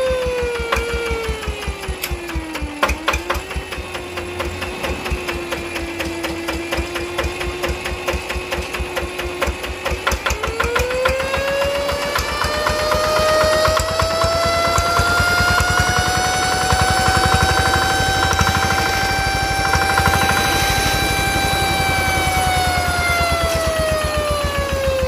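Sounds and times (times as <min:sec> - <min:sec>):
diesel engine knocking: 0:00.0 - 0:25.0
engine whine: 0:00.0 - 0:25.0.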